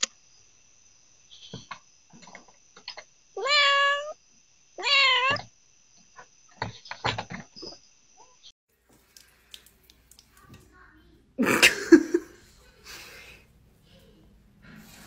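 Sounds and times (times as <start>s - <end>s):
cat meowing: 3.4s - 4.2s, 4.8s - 5.4s.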